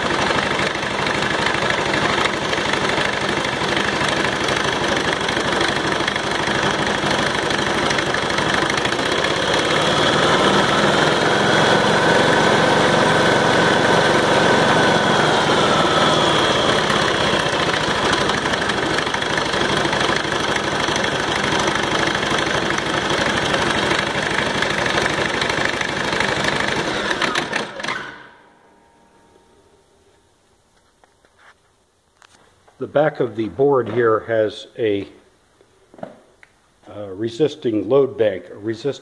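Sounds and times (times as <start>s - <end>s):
engine running steadily: 0.0s - 29.4s.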